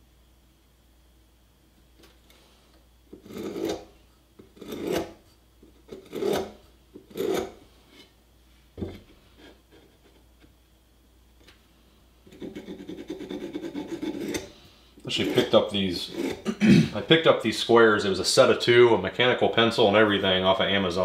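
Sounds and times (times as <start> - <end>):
pencil scraping on wood: 3.2 - 3.9, 4.5 - 5.2, 5.9 - 7.6, 12.3 - 14.5, 15.1 - 16.4.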